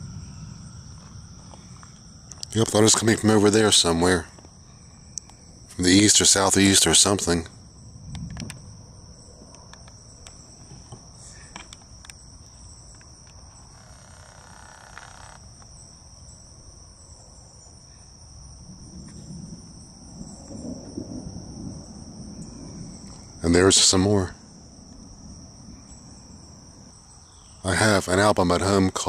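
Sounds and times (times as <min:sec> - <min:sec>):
distant thunder rumble: 0:00.0 - 0:11.5, 0:18.5 - 0:28.7
high-pitched insect chorus: 0:00.0 - 0:29.0.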